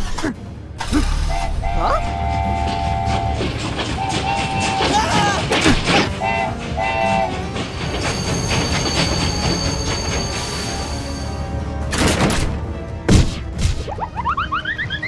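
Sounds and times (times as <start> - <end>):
train rumble and clattering wheels: 0.0 - 13.6
train horn blasts: 1.0 - 4.9, 6.1 - 7.6.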